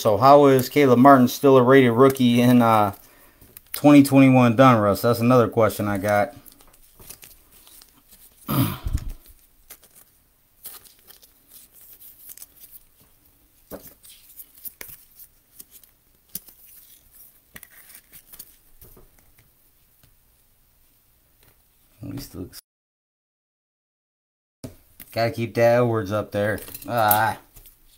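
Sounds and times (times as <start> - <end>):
cards rustling and clicking: 0.2 - 4.2, 5.1 - 20.2, 26.4 - 27.9
plastic wrappers crinkling and tearing: 5.6 - 19.4, 26.5 - 27.9.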